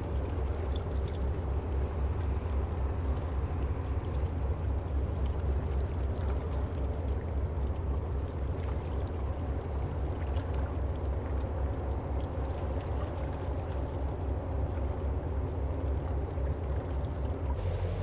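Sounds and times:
ship diesel engine drone: 13.7s - 18.0s.

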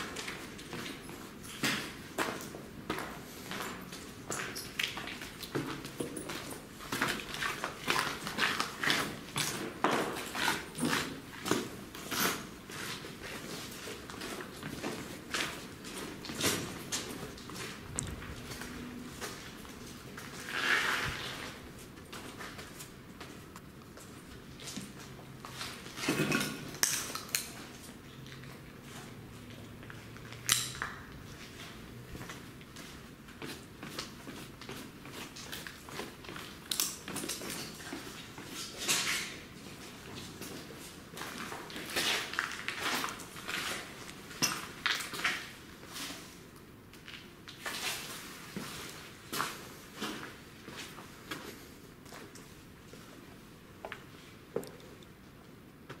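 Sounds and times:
footsteps crunching on rubble: 0.0s - 26.3s.

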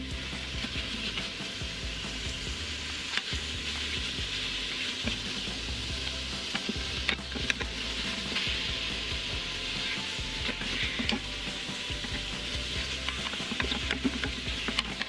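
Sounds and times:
meat sizzling in a pot: 0.0s - 15.0s
wooden spatula scraping a pot: 3.0s - 15.0s.

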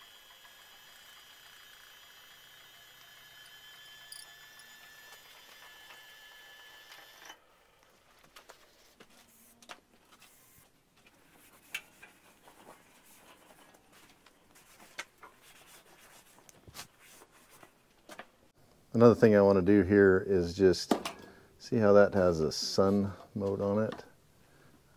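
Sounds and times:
faint high whine: 0.0s - 7.8s.

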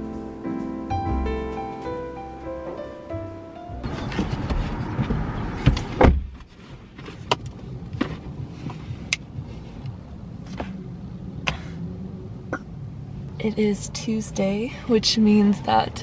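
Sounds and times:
low steady rumble: 0.0s - 16.0s
car door shutting: 3.8s - 8.3s.

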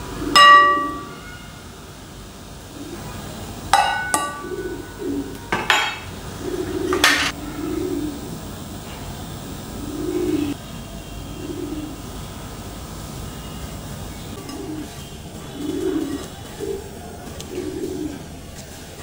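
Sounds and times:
bird cooing: 0.0s - 1.2s, 2.7s - 3.3s, 3.9s - 8.4s, 9.7s - 10.6s, 11.3s - 12.0s, 14.4s - 18.5s
clinks of metal and glass kitchenware: 0.4s - 1.2s, 3.8s - 4.5s, 5.5s - 6.1s.

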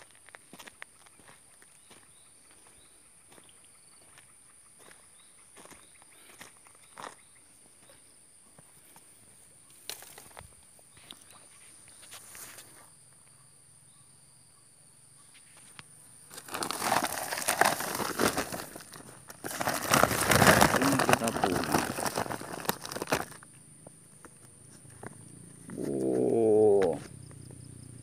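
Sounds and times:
plastic bag crinkling: 16.3s - 23.4s
high-pitched insect whine: 22.6s - 28.0s.

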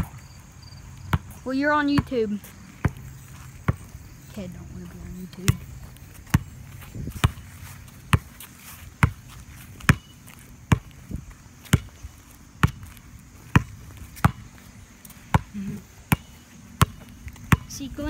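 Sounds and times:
ball bouncing on pavement: 0.0s - 18.0s.

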